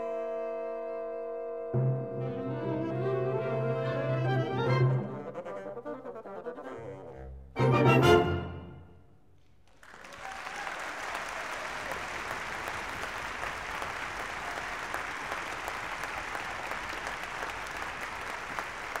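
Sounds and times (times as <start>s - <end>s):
audience applauding: 9.6s - 19.0s.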